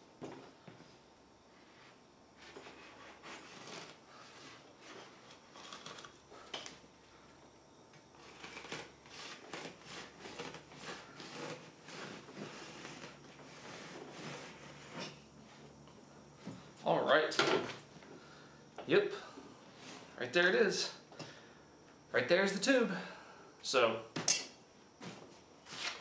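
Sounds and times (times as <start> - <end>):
blade sawing through rubber: 8.3 - 14.6.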